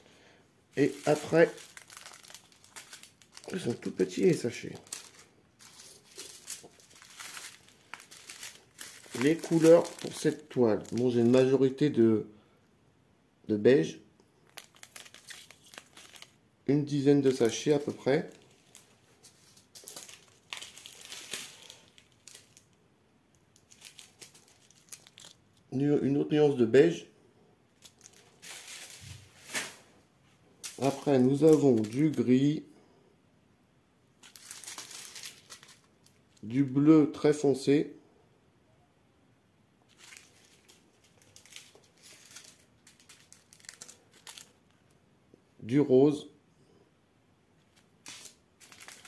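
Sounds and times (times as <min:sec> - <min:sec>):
plastic bags crinkling: 0:00.7 - 0:11.5, 0:14.4 - 0:25.7, 0:27.8 - 0:29.9, 0:30.6 - 0:32.3, 0:34.2 - 0:36.5, 0:39.9 - 0:44.9, 0:47.6 - 0:49.0.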